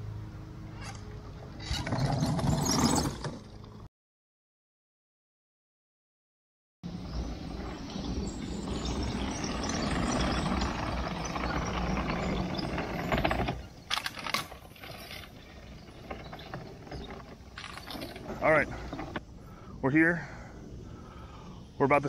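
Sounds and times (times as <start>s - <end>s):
toy tank tracks clattering: 16.3s - 19.2s.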